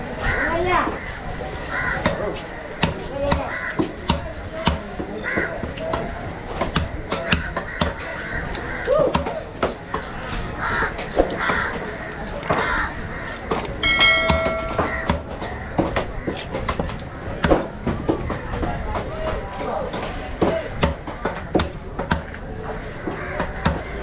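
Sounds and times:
crows cawing: 0:00.3 - 0:02.2, 0:03.4 - 0:03.9, 0:10.6 - 0:11.9, 0:12.5 - 0:13.5
steady pitched tone: 0:13.7 - 0:15.2.

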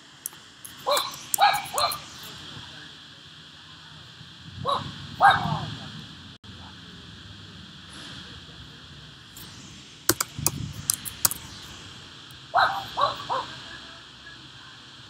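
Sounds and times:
keyboard clicks: 0:00.0 - 0:02.0, 0:10.1 - 0:11.6.

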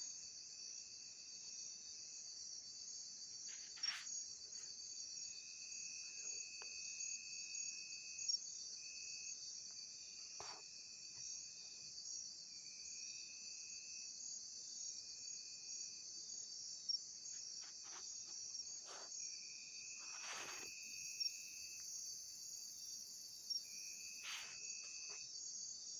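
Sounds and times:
lower insect trill: 0:00.0 - 0:25.9
high-pitched insect trilling: 0:17.3 - 0:25.2.

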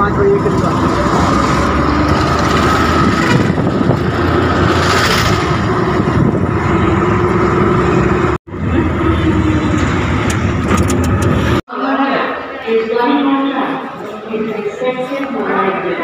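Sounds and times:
auto-rickshaw engine running: 0:00.0 - 0:11.6
road rumble: 0:00.0 - 0:11.7.

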